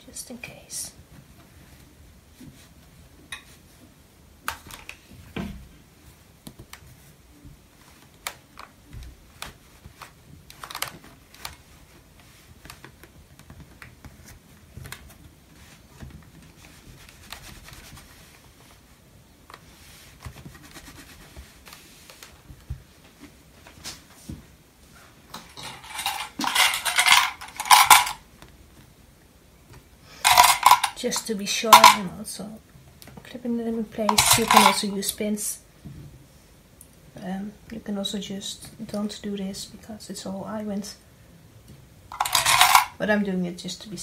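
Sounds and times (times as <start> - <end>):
fabric being folded: 6.0 - 24.3.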